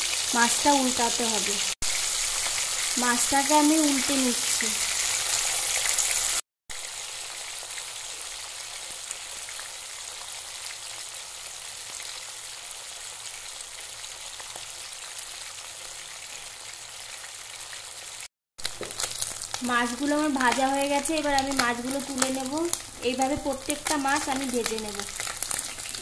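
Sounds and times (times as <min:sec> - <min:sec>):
fish sizzling in hot oil: 0:00.0 - 0:26.0.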